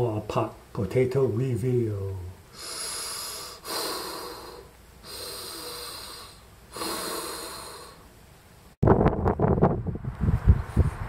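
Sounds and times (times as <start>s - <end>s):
hissing breaths through a mask: 2.5s - 8.1s
wind noise on microphone: 8.8s - 11.0s.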